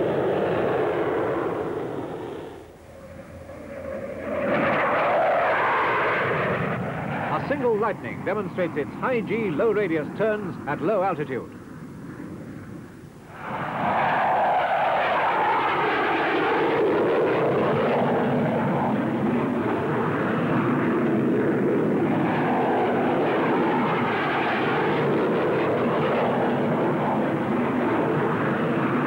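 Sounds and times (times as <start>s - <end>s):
fighter jet engine roaring: 0.0s - 29.0s
jet engine whine: 0.0s - 29.0s.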